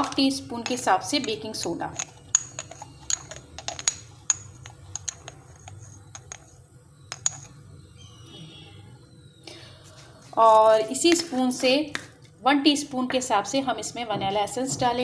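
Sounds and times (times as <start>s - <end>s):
utensils clicking and tapping: 0.0s - 7.6s.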